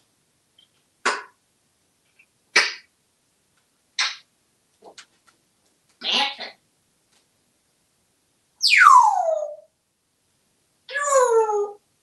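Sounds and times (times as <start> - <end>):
parrot making sharp sounds: 2.5 - 2.9, 4.0 - 4.2, 6.0 - 6.6, 10.9 - 11.8.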